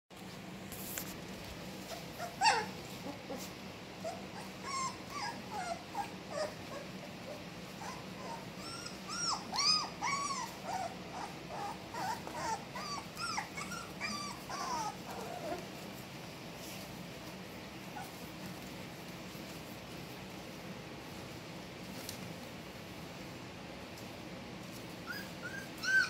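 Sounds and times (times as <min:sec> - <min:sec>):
puppies whimpering and squeaking: 0:01.8 - 0:17.2, 0:17.8 - 0:18.7, 0:24.7 - 0:26.0.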